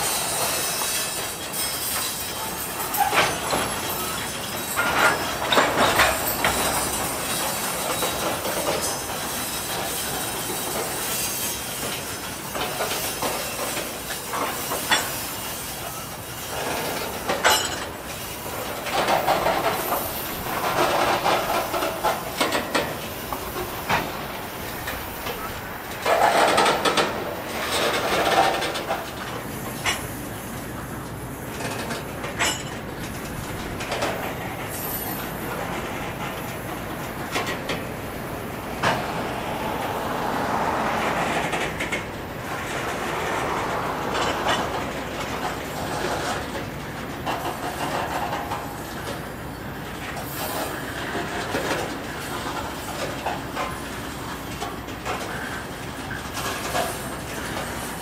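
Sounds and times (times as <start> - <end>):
train cars clattering: 0.0 - 58.0
train wheels rolling on rails: 0.0 - 58.0.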